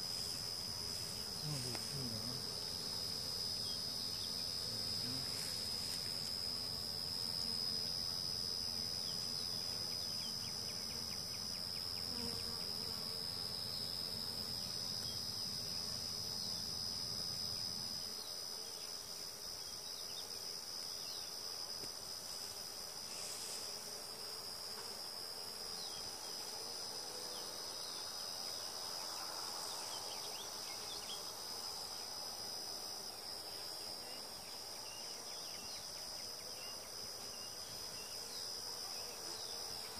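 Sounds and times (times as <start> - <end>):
honeybees buzzing: 0.0 - 39.9
insects droning: 0.0 - 39.9.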